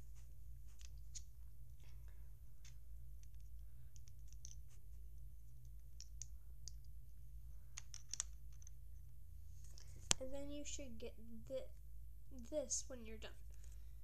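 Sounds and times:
steady low hum: 0.0s - 14.0s
plastic bricks clicking: 7.8s - 8.7s.

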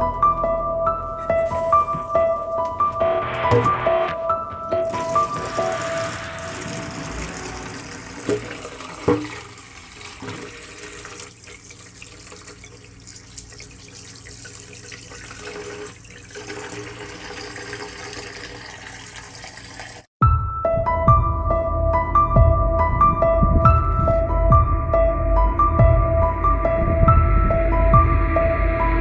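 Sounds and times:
background music: 0.0s - 9.6s, 20.2s - 29.0s
tap water running into pot: 4.9s - 20.1s.

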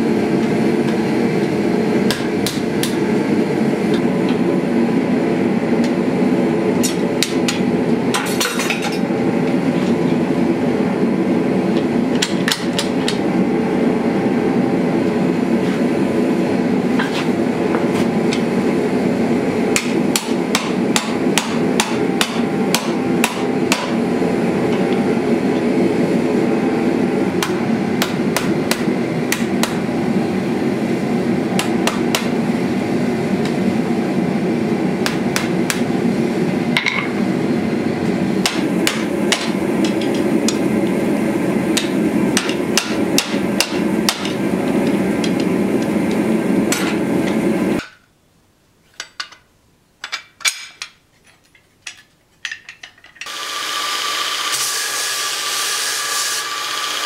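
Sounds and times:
hammer striking hot steel: 0.9s - 3.2s, 6.7s - 9.1s, 12.1s - 13.2s, 19.7s - 24.0s, 27.4s - 29.9s, 31.6s - 32.4s, 35.0s - 35.9s, 38.4s - 40.7s, 41.7s - 48.0s.

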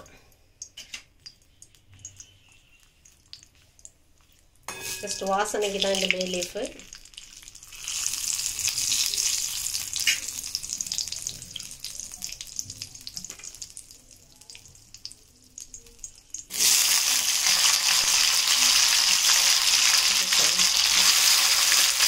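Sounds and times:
leaf crackling in hot oil: 0.6s - 22.0s
potatoes sizzling in oil: 4.9s - 14.2s, 14.8s - 22.0s.

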